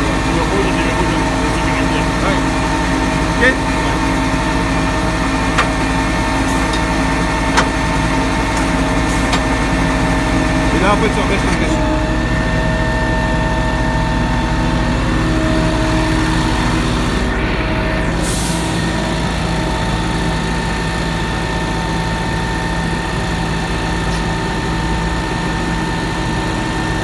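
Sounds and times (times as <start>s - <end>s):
whining tones: 0.0s - 19.8s
street sweeper engine running: 0.0s - 27.0s.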